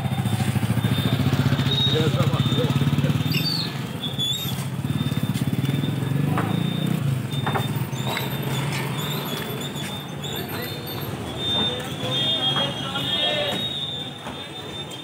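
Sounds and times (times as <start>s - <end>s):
market ambience: 0.0s - 15.0s.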